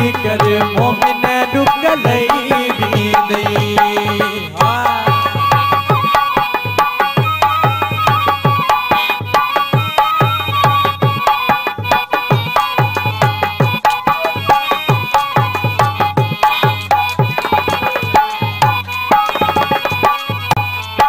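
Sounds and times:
hand drum rhythm: 0.0s - 21.0s
held melody line: 0.0s - 21.0s.

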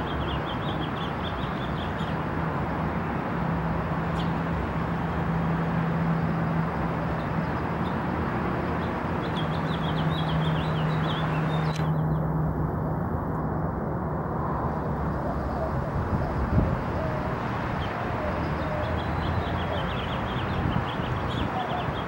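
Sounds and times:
city traffic noise: 0.0s - 22.0s
bird chirps: 9.2s - 12.2s.

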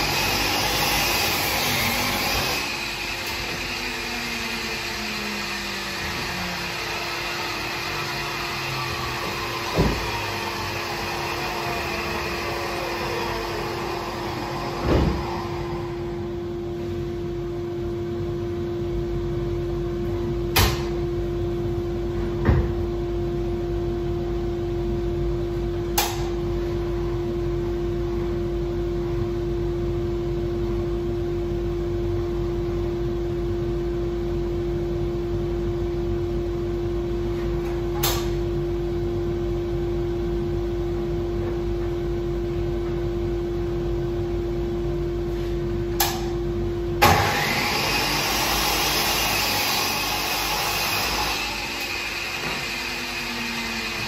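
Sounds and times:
power tool motor winding down: 0.0s - 16.1s, 47.0s - 54.0s
steady machine hum: 0.0s - 54.0s.

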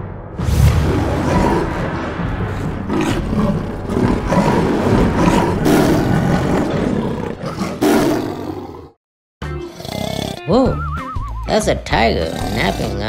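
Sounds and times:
animal roaring and growling: 0.6s - 9.0s, 9.7s - 10.4s, 12.2s - 13.0s.

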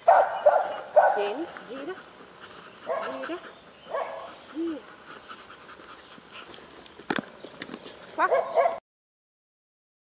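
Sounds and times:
dog yipping: 0.1s - 1.3s, 3.9s - 4.4s, 8.2s - 8.8s.

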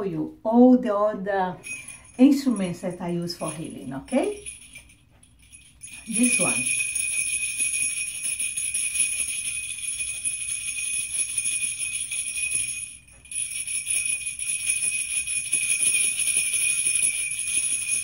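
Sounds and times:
jingle bells shaken: 1.6s - 18.0s.

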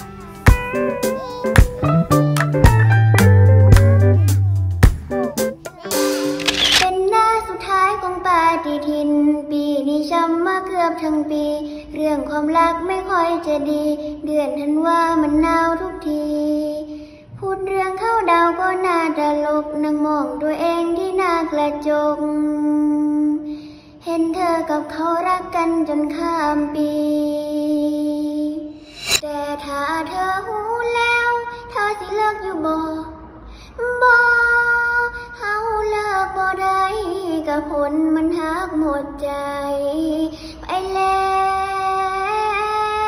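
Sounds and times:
girl singing: 0.9s - 1.7s, 4.0s - 4.6s, 5.7s - 43.0s
sharp click: 5.9s - 6.9s, 28.8s - 29.2s.

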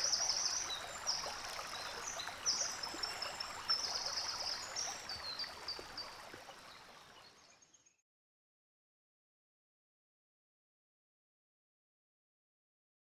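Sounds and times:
stream water running: 0.0s - 7.7s.

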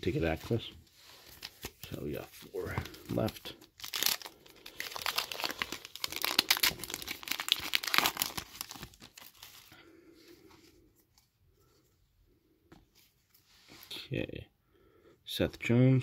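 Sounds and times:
wrapper crinkling: 1.2s - 9.8s.

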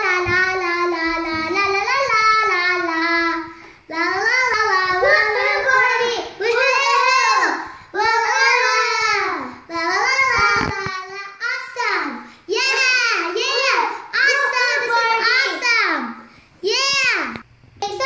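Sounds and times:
child singing la la la: 0.0s - 11.4s.

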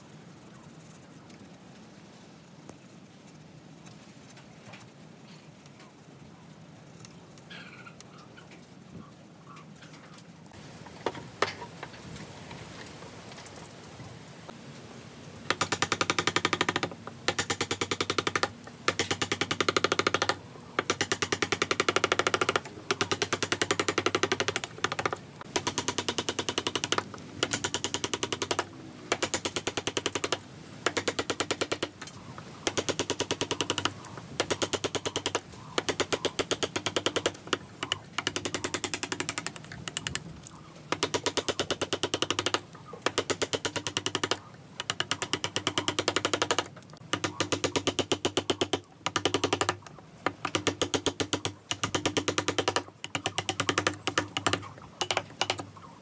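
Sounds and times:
power chisel hammering wood: 15.5s - 31.9s, 32.6s - 40.2s, 40.9s - 55.6s.

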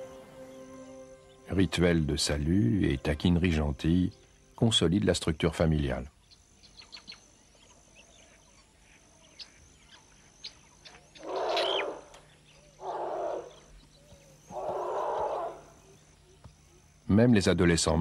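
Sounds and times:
faint high chirps: 0.0s - 17.1s
elephants calling: 11.1s - 13.8s, 14.4s - 15.9s.

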